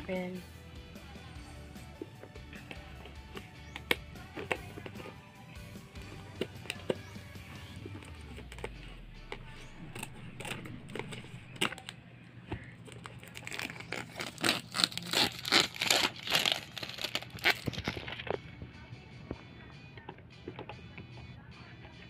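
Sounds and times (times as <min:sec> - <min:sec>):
plastic wrap crinkling and tearing: 0:07.8 - 0:12.0, 0:12.8 - 0:18.4
scissors cutting shrink wrap: 0:07.8 - 0:12.0, 0:12.8 - 0:18.4.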